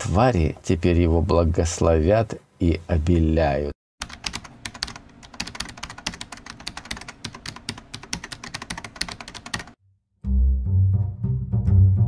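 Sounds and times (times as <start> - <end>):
computer keyboard typing: 4.0 - 9.8.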